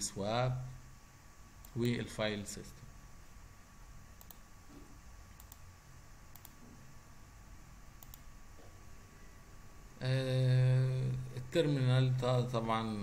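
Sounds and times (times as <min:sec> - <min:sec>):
low steady background hiss: 0:00.0 - 0:13.0
computer mouse clicks: 0:01.6 - 0:02.0, 0:04.2 - 0:04.5, 0:05.3 - 0:05.7, 0:06.3 - 0:06.8, 0:08.0 - 0:08.3.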